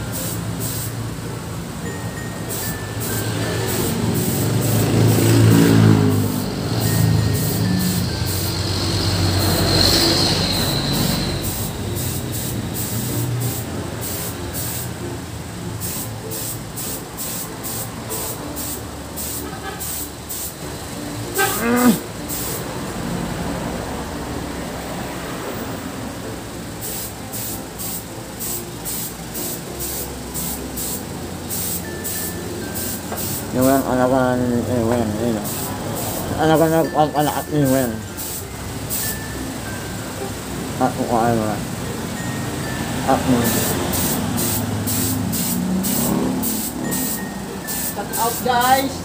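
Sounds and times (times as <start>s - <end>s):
spray gun hissing bursts: 0.0s - 1.2s, 2.4s - 15.1s, 15.7s - 20.6s, 26.7s - 34.0s, 35.3s - 36.6s, 37.6s - 39.2s, 43.3s - 48.6s
short rising squeak: 5.8s - 11.8s.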